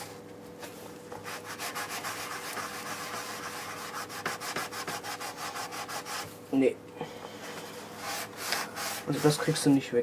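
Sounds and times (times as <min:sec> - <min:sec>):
hand scrubbing a fender: 0:01.2 - 0:06.3, 0:07.8 - 0:09.8.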